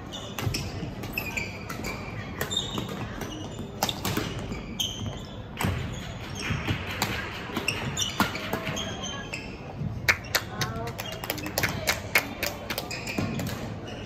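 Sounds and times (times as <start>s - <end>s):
shoes squeaking on floor: 0.0s - 10.0s, 12.8s - 14.0s.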